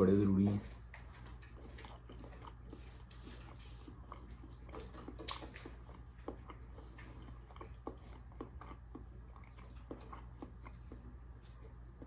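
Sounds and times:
steady low hum: 0.0 - 12.0
person chewing with wet smacks: 0.7 - 12.0.

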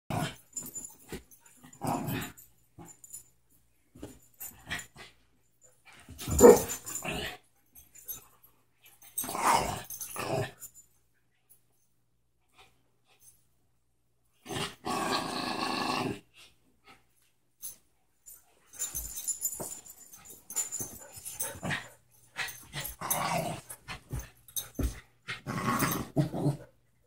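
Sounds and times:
dogs growling: 14.4 - 16.2, 21.3 - 24.2, 25.3 - 26.7.

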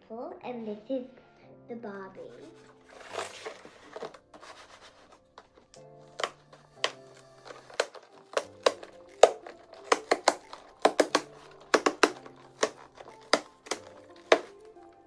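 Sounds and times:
cardboard tear strip tearing: 2.9 - 4.2, 6.2 - 14.6.

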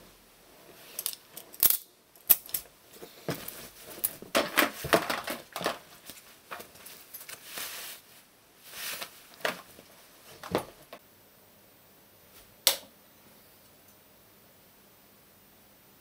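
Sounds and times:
clothing rustle: 2.9 - 11.0.

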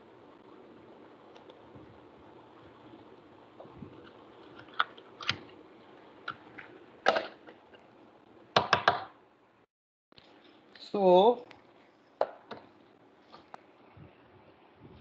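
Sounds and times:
marker clicks and knocks: 8.6 - 9.1.

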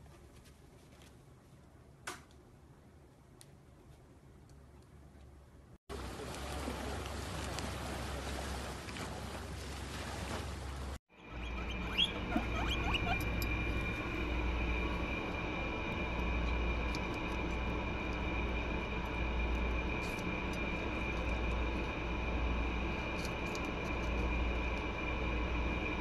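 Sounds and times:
low hum: 1.2 - 26.0
high whine: 11.1 - 26.0
guinea pigs squeaking: 11.3 - 13.6
guinea pigs crunching food: 20.0 - 21.9, 22.9 - 24.8.

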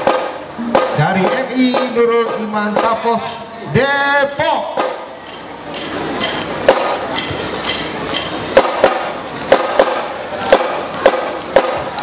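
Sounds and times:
low background noise: 0.0 - 12.0.

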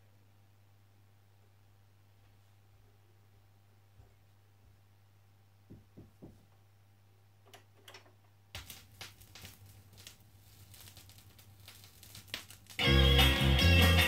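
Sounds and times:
vinyl crackle and pops: 7.4 - 14.0.

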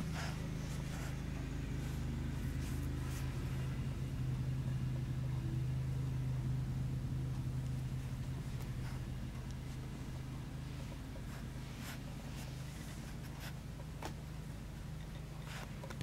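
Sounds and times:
low machine hum: 0.0 - 16.0
faint rustling: 7.3 - 14.3.

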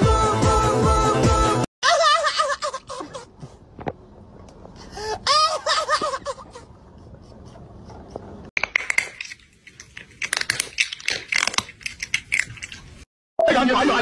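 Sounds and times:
person laughing: 1.8 - 3.6, 5.0 - 6.8
crunchy chewing: 7.1 - 13.1.

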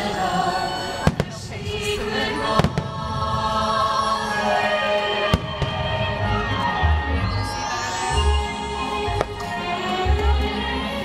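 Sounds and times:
music over loudspeakers: 0.0 - 11.0
fireworks bursting with bangs: 1.0 - 3.5, 5.2 - 6.1.

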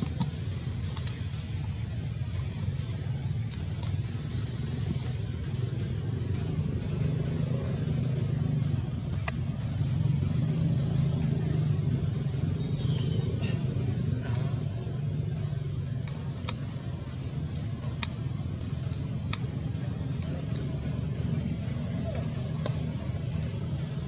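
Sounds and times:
faint clicks: 0.0 - 5.2, 15.9 - 20.8
engine low rumble: 0.0 - 24.0.

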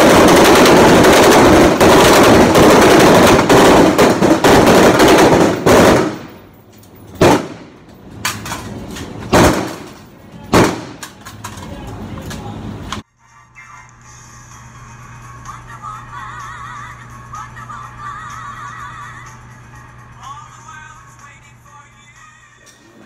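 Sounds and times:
rifles firing: 0.0 - 6.5, 7.1 - 11.6.

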